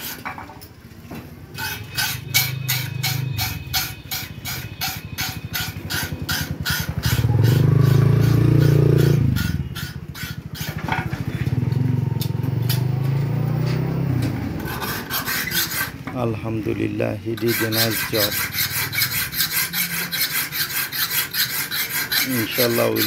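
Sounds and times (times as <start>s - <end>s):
file rasping on steel blade: 0.0s - 0.3s, 1.6s - 11.4s, 14.6s - 23.0s
engine humming: 5.5s - 14.8s.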